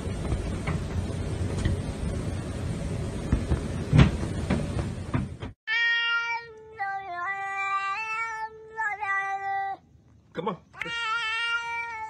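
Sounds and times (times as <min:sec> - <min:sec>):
cat meowing: 0:10.8 - 0:12.0.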